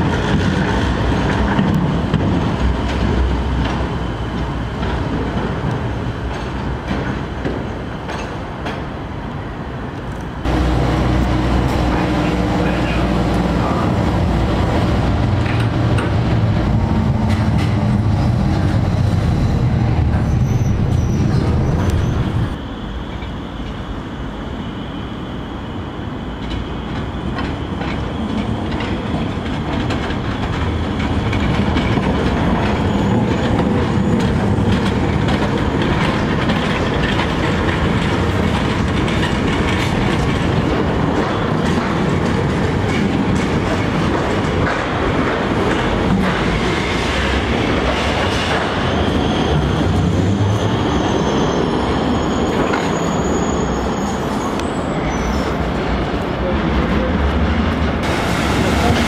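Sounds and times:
tram wheel squeal: 0.0 - 59.0
tram wheels rumbling on rails: 0.0 - 59.0.

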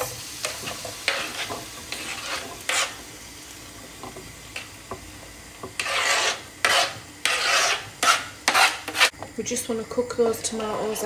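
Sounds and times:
tomatoes sizzling in pan: 0.0 - 11.0
knife scraping on wooden board: 0.6 - 3.0, 5.6 - 9.1.

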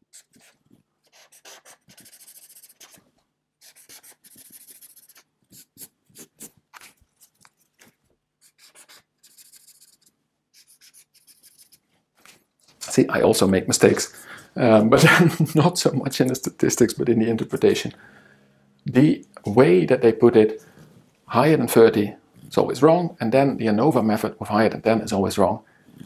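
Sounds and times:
marker scribbling on paper: 0.0 - 3.0, 3.6 - 7.6, 8.4 - 12.4.

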